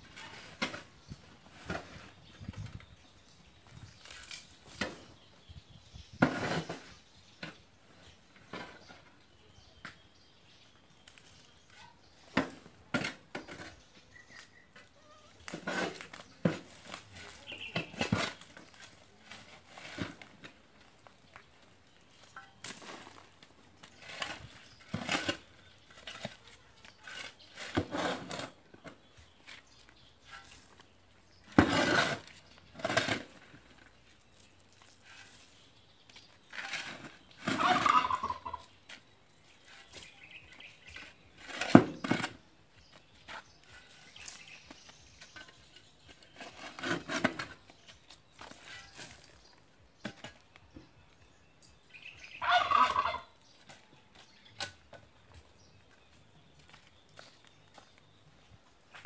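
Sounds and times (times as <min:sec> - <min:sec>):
shovel scraping soil: 0:00.0 - 0:02.9, 0:06.1 - 0:07.7, 0:11.0 - 0:20.7, 0:22.2 - 0:50.5
soil dumped against metal drum: 0:31.4 - 0:33.9.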